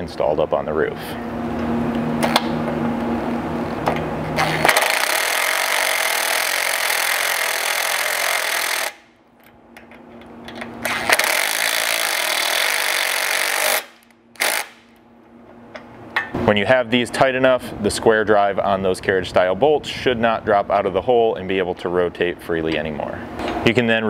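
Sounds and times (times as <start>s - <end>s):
impact driver hammering: 4.4s - 9.0s.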